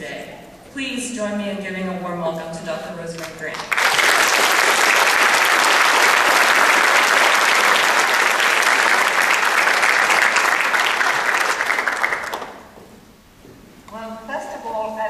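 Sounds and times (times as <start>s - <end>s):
audience applauding: 3.6s - 12.7s.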